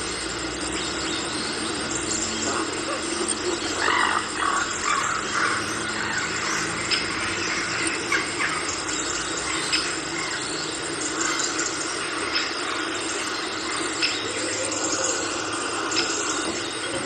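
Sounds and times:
rainforest wildlife din: 0.0s - 17.0s
animal calls: 2.0s - 10.4s.

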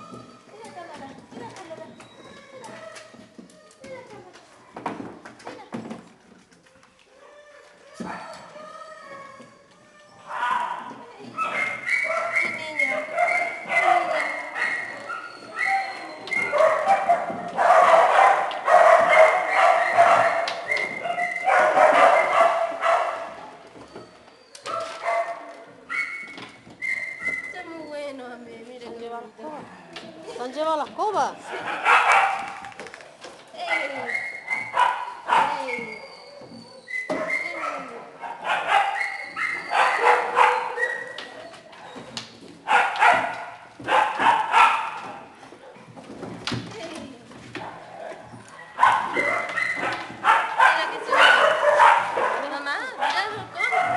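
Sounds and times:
small dogs barking and yelping: 7.4s - 28.4s, 31.4s - 46.0s, 47.5s - 53.9s.

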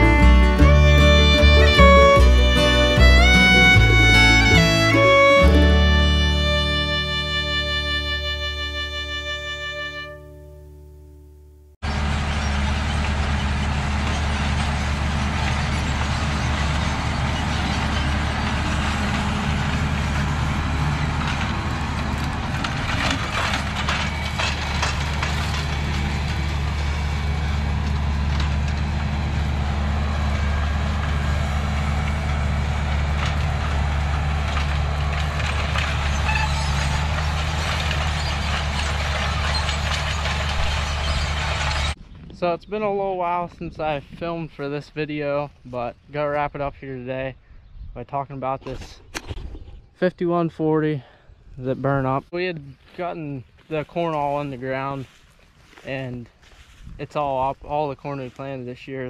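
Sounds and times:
vehicle engine running: 0.0s - 42.1s, 52.8s - 56.9s.

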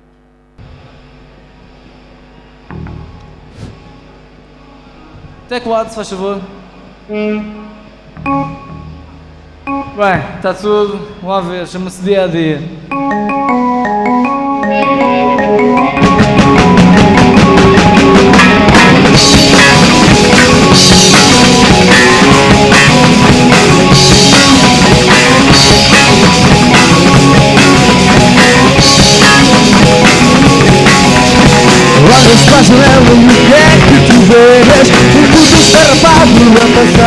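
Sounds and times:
keyboard single notes: 2.6s - 11.4s, 12.8s - 32.6s
rock band playing: 2.7s - 6.4s, 7.4s - 11.2s, 12.8s - 37.0s
cymbal crashes: 2.7s - 6.8s, 8.1s - 10.4s.

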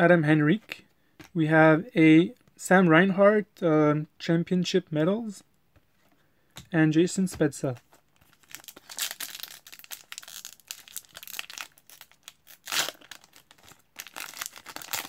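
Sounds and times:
wrapper crinkling: 7.7s - 15.0s
wrapper ripping: 8.2s - 15.0s.

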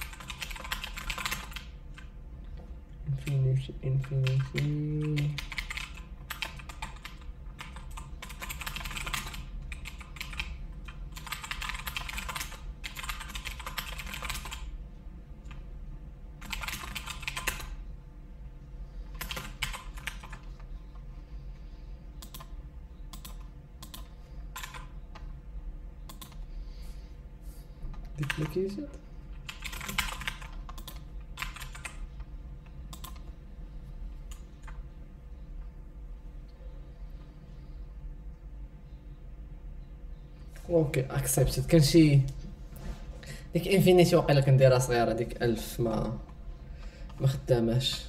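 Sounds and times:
typing on keyboard: 0.0s - 2.1s, 3.2s - 14.7s, 16.4s - 17.8s, 19.1s - 20.6s, 22.2s - 25.3s, 26.1s - 26.4s, 28.2s - 28.7s, 29.4s - 32.0s, 32.9s - 33.3s.

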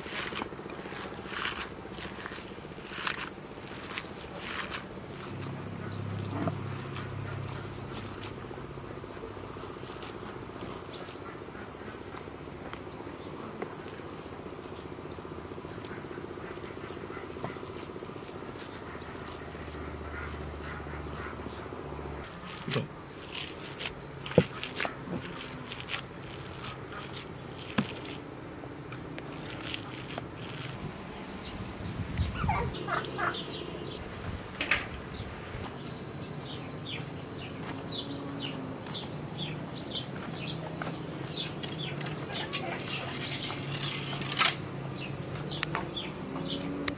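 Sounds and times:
insects droning: 0.0s - 46.9s
sharp clicks and knocks: 34.6s - 35.0s.

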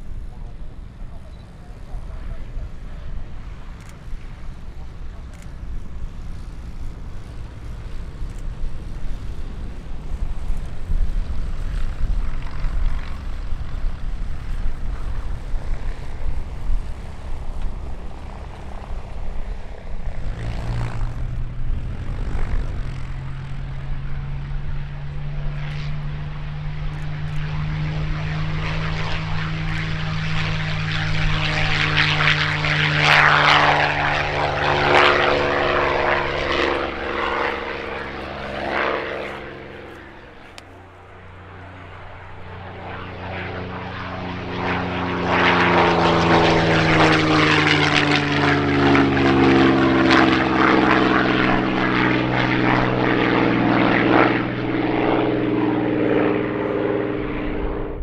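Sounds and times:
propeller aircraft engine droning: 0.0s - 58.0s
low rumble: 55.1s - 58.0s.

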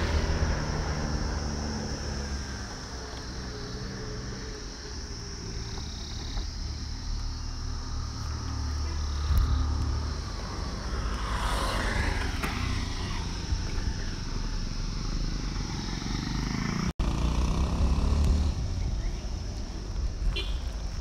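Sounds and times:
vehicle engine running: 0.0s - 21.0s
steady low rumble: 4.3s - 11.4s.

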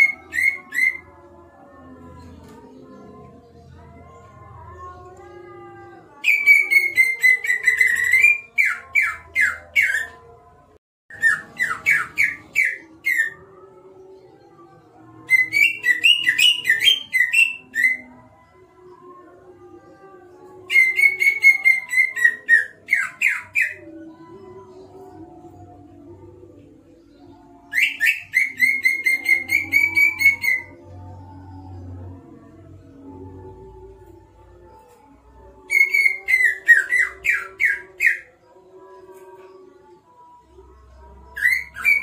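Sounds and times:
bird singing whistled song: 0.0s - 1.1s, 6.2s - 10.2s, 11.1s - 13.4s, 15.3s - 18.1s, 27.7s - 30.7s, 35.7s - 38.3s, 41.4s - 42.0s.

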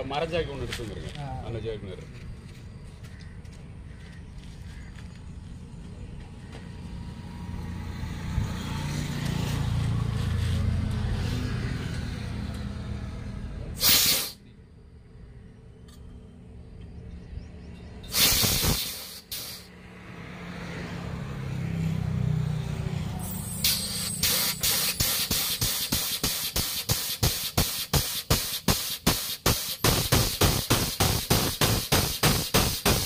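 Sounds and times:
compressed air hissing: 13.8s - 14.4s, 18.1s - 19.7s, 23.2s - 33.0s
short air blasts: 13.8s - 14.4s, 18.1s - 19.7s, 23.2s - 33.0s
rhythmic air pulses: 18.1s - 19.7s, 23.2s - 33.0s.

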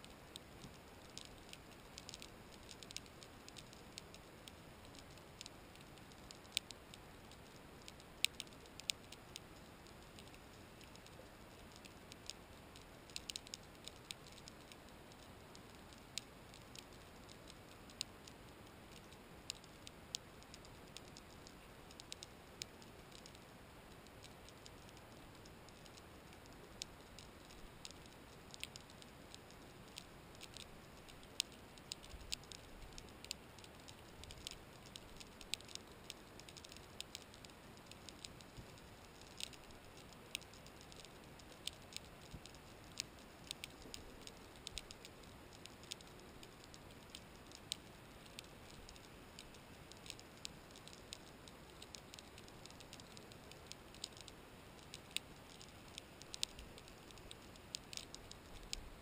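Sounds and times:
faint steady hiss: 0.0s - 59.0s
underwater clicks and snaps: 24.0s - 59.0s.

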